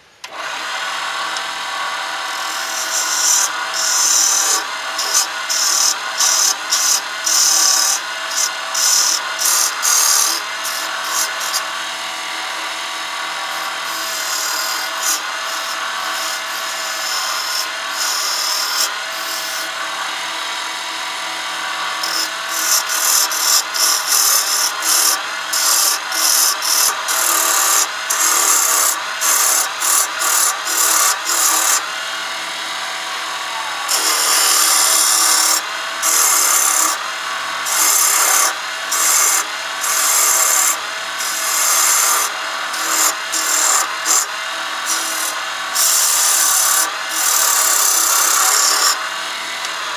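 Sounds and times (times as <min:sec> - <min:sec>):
chisel cutting wood on lathe: 0:00.2 - 0:49.9.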